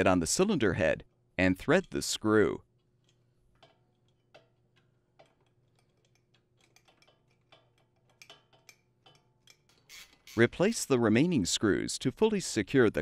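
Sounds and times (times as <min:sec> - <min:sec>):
metal ticks and clicks: 0:01.6 - 0:02.2, 0:02.8 - 0:10.3.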